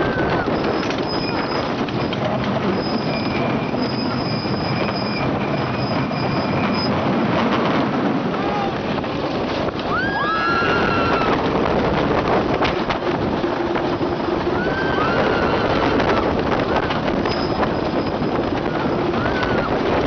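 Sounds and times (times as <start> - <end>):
riders screaming: 0.0 - 0.9, 8.3 - 8.9, 9.8 - 11.5, 14.5 - 17.0, 18.6 - 19.9
roller coaster rumbling on track: 0.0 - 20.0
track clacks: 0.0 - 20.0
wind on microphone: 0.0 - 20.0.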